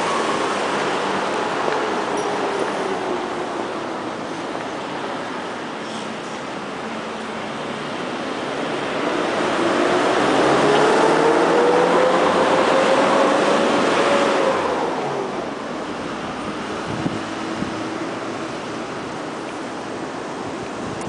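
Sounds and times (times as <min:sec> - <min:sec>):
vehicle passing: 0:08.9 - 0:15.6.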